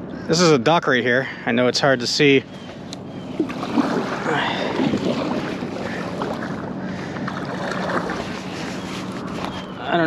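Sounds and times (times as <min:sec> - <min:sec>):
water lapping against kayak: 0:02.5 - 0:09.8.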